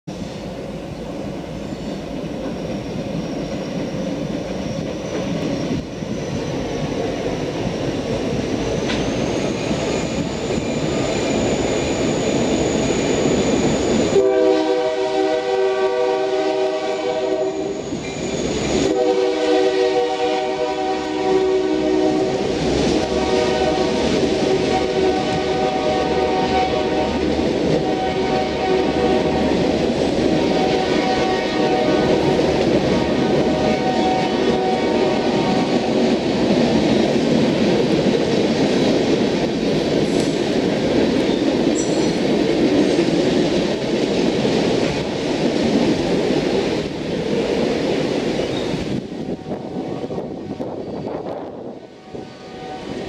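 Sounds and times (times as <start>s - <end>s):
diesel train rumble and whine: 0.1s - 53.0s
locomotive horn blasts: 14.0s - 17.8s, 18.8s - 29.6s, 30.4s - 35.9s, 51.9s - 53.0s.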